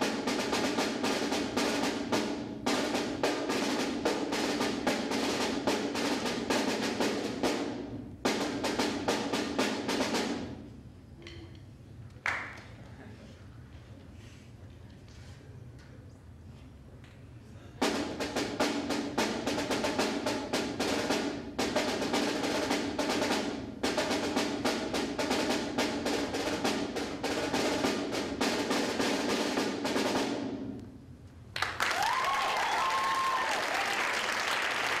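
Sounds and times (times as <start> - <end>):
snare drum rolls: 0.0 - 10.8, 17.8 - 35.0
audience applauding: 31.6 - 35.0.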